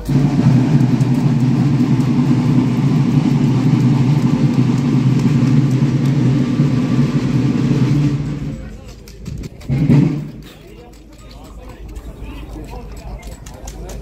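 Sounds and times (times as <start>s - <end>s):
drum roll: 0.0s - 12.0s.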